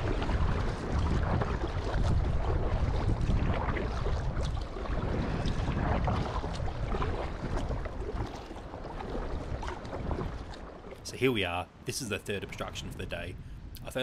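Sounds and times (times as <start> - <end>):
paddle splashing in water: 0.0 - 11.2
wind buffeting microphone: 0.0 - 11.2.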